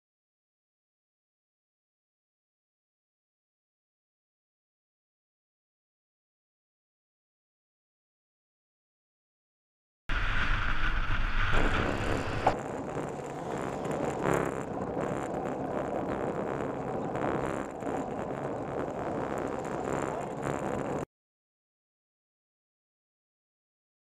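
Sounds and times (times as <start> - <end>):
wind buffeting microphone: 10.1 - 21.0
bicycle road noise: 10.1 - 21.1.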